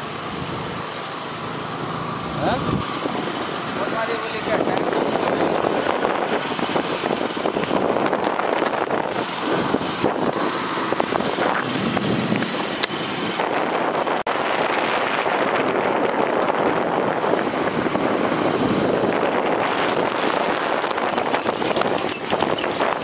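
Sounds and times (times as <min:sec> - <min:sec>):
traffic noise: 0:00.0 - 0:23.0
wind on microphone: 0:02.2 - 0:23.0.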